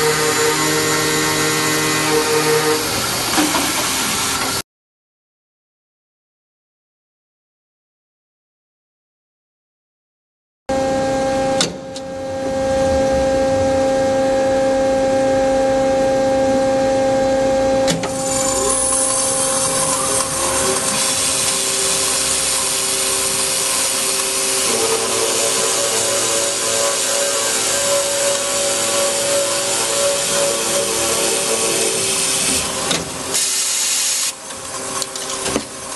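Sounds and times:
saw blade grinding through metal: 0:00.0 - 0:04.6, 0:18.1 - 0:34.4
saw machine hum: 0:00.0 - 0:04.6, 0:18.1 - 0:35.9.

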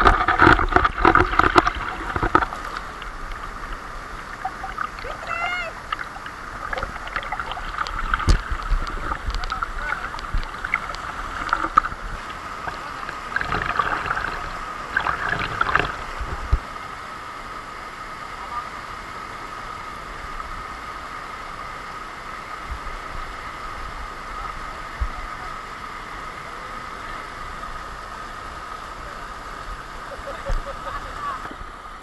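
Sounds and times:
knocks and splashes: 0:00.0 - 0:03.1, 0:05.9 - 0:16.7
waterfall rushing: 0:00.0 - 0:32.0.

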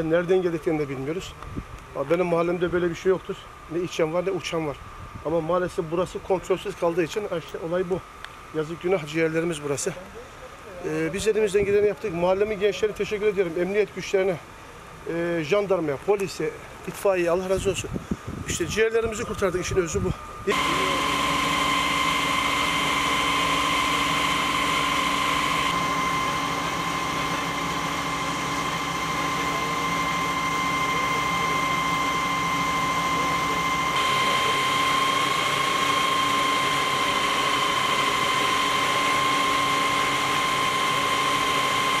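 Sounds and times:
fire engine high-pitched whine: 0:00.0 - 0:15.8, 0:18.4 - 0:42.0
low hum: 0:19.2 - 0:42.0.

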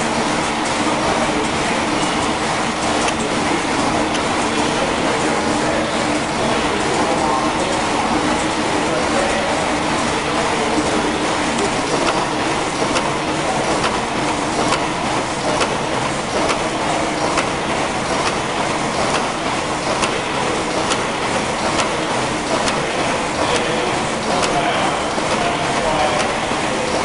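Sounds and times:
steam engine running: 0:00.0 - 0:27.0
sharp mechanical tick: 0:11.6 - 0:12.2, 0:12.8 - 0:14.0, 0:14.6 - 0:14.9, 0:15.5 - 0:15.8, 0:20.8 - 0:22.8.

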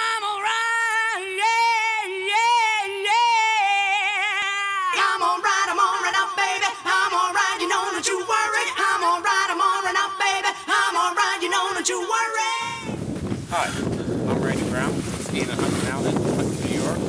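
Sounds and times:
high singing voice with vibrato: 0:00.0 - 0:13.0.

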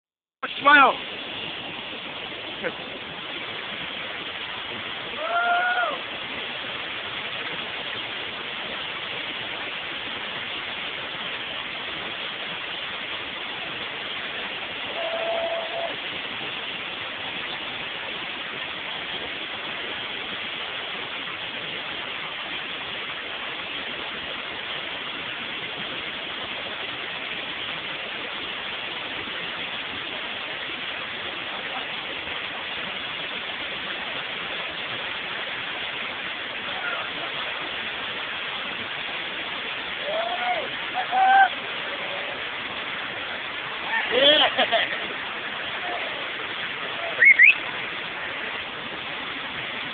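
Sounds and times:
water rushing over rocks: 0:00.4 - 0:49.9.

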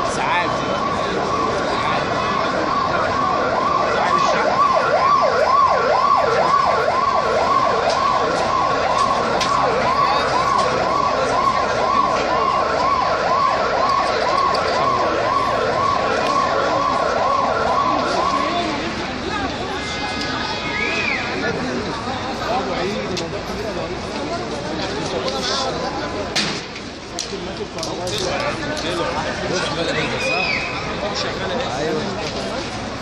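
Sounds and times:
emergency siren yelping: 0:00.0 - 0:21.5.

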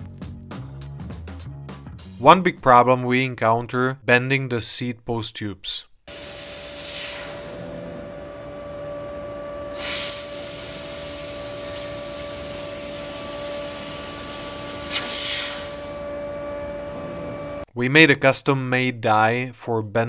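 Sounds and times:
loud hissing bursts: 0:06.1 - 0:08.0, 0:09.7 - 0:16.1
machine hum with whine: 0:06.1 - 0:17.7.

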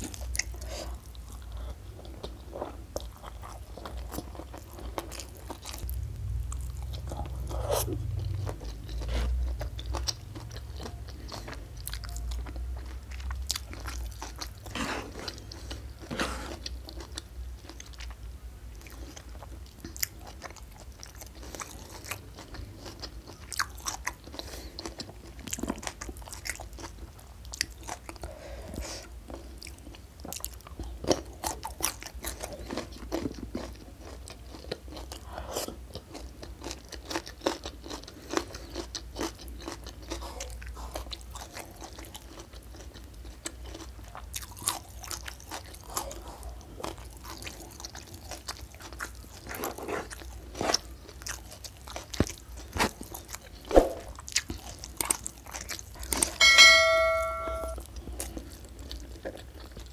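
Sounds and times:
close chewing with crisp crunches: 0:00.0 - 0:56.5, 0:57.8 - 0:59.9.

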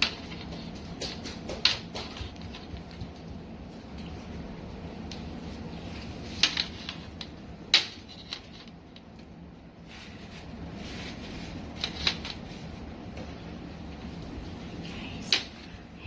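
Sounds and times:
objects clicking and knocking: 0:00.0 - 0:03.2
low steady hum: 0:00.0 - 0:16.0.

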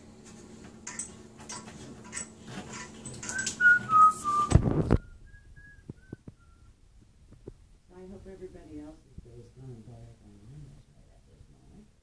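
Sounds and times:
person whistling: 0:03.3 - 0:06.8.

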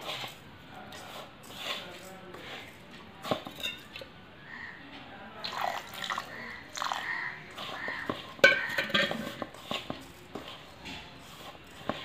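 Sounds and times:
hand mixing in steel bowl: 0:00.0 - 0:04.1, 0:05.4 - 0:12.0
knocks against steel bowl: 0:08.0 - 0:09.5.

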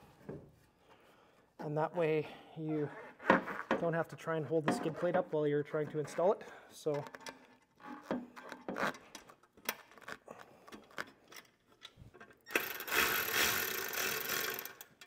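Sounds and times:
cordless power tool running: 0:12.6 - 0:14.8.

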